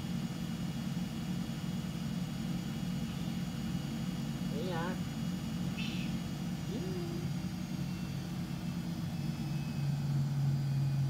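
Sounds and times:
washing machine motor hum: 0.0s - 11.0s.

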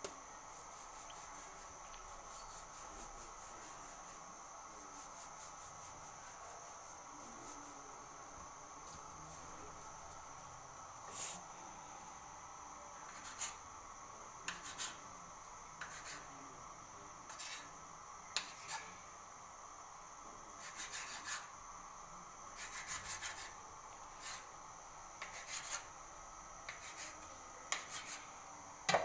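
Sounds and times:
faint high-pitched hum: 0.0s - 29.0s
knife scraping and tapping on stone: 14.5s - 15.0s, 18.3s - 18.9s, 26.7s - 28.2s.

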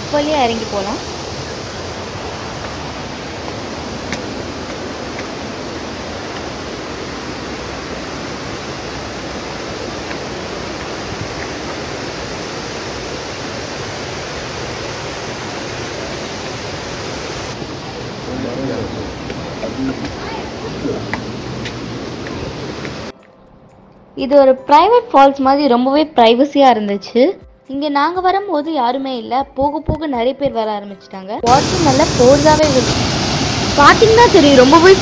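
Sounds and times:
waterfall rushing: 0.0s - 23.1s, 31.5s - 35.0s.

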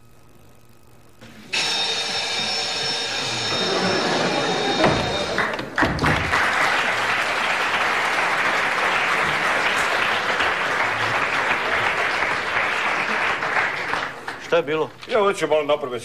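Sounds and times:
audience applauding: 3.5s - 14.6s.

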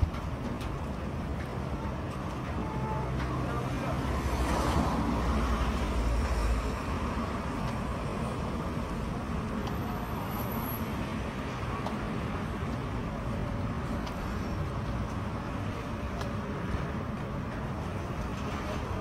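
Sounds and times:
low traffic rumble: 0.0s - 19.0s
vehicles passing on wet road: 0.0s - 19.0s.

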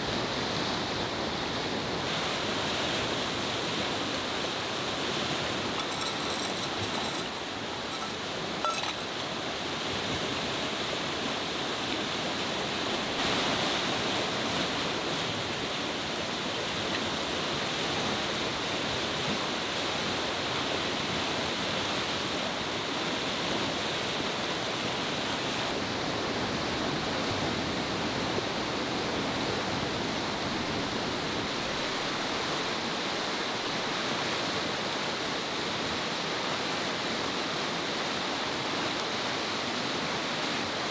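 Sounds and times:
fast-flowing river rushing: 0.0s - 40.9s
metal cookware clinking: 5.8s - 9.1s.

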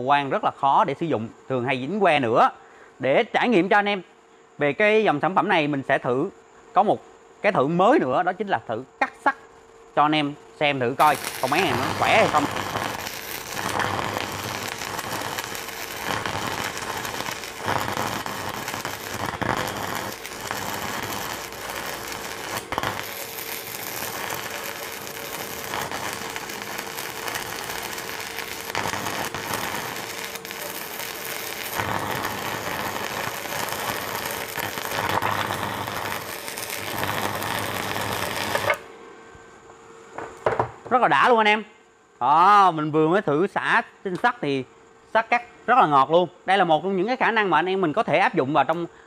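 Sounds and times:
faint steady hum: 0.0s - 49.0s
crackling welding arc: 8.2s - 38.9s.

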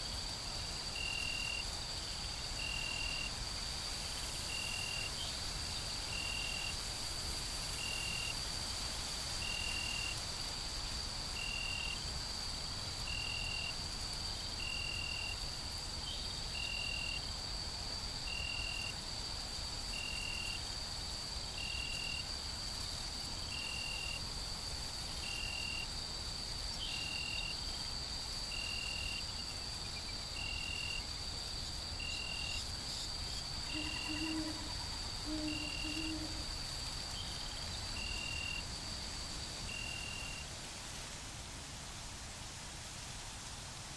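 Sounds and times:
short insect chirp: 0.0s - 41.1s
crickets droning: 0.0s - 43.9s
low hooting call: 33.7s - 36.4s.

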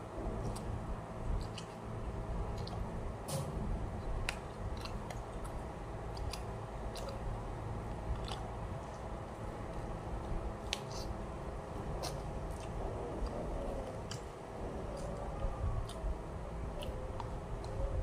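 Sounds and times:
low steady hum: 0.0s - 18.0s
person chewing: 1.4s - 1.8s, 4.0s - 11.2s, 11.8s - 17.8s.

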